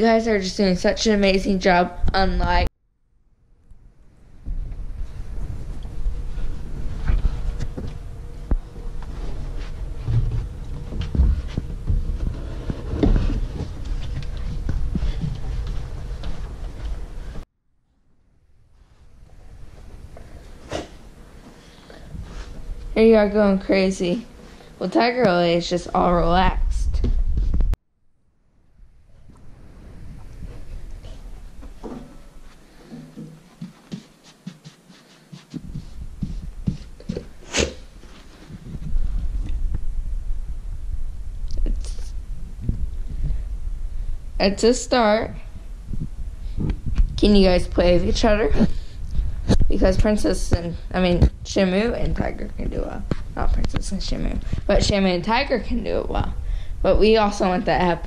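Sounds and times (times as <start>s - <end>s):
footsteps on carpet: 6.3s - 17.4s, 30.2s - 39.3s.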